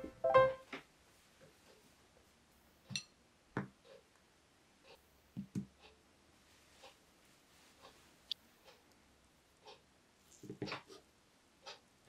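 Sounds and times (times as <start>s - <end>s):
faint taps and clicks: 5.3s - 5.9s.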